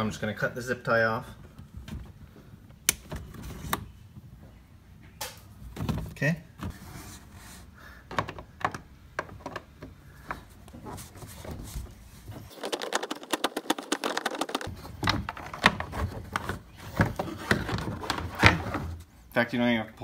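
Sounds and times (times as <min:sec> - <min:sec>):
rapid clicking: 0:12.5 - 0:14.7.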